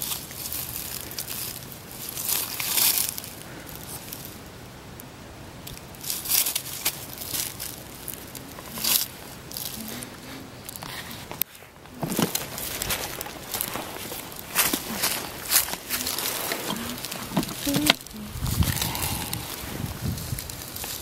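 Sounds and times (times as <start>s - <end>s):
footsteps in leaf litter: 0.0s - 4.4s, 5.9s - 21.0s
net swishing through dry leaves: 12.3s - 21.0s.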